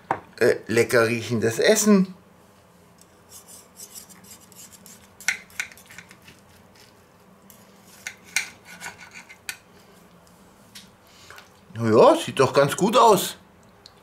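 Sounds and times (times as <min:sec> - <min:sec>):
knife sawing on a plate: 0:03.3 - 0:06.1, 0:07.9 - 0:09.4.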